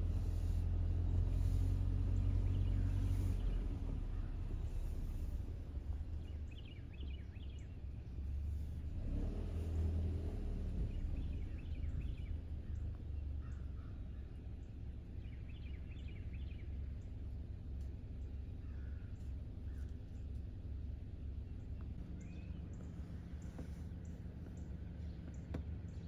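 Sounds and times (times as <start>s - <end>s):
steady low rumble: 0.0s - 9.8s, 10.6s - 26.0s
bird chirping: 0.4s - 8.0s, 10.8s - 17.2s, 21.2s - 26.0s.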